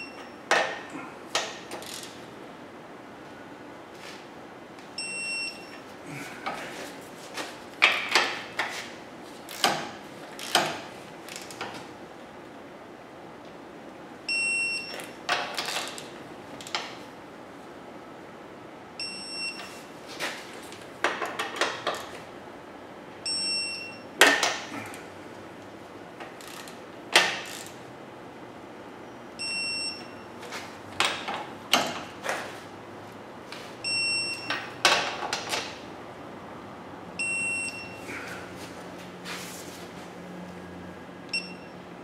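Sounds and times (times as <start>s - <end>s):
short electronic beep: 37.2s - 38.0s, 41.3s - 41.8s.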